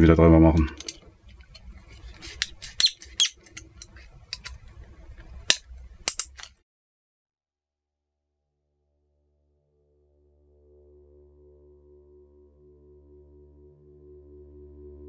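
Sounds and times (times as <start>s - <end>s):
screwdriver clicking on plastic: 5.5s - 6.6s.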